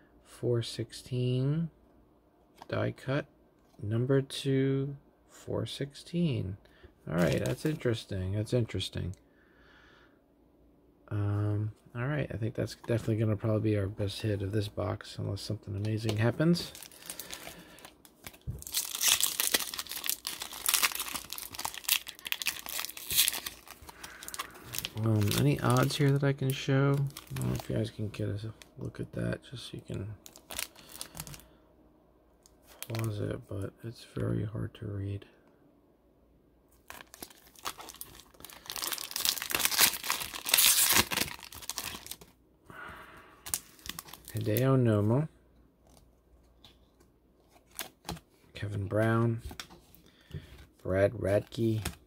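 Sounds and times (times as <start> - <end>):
wrapper crinkling: 15.8 - 28.0, 30.2 - 31.4, 36.8 - 42.3, 43.4 - 44.6.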